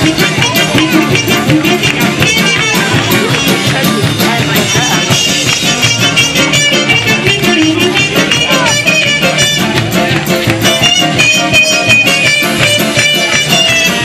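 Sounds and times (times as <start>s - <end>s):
drum kit beat: 0.0s - 14.0s
live band playing dance music: 0.0s - 14.0s.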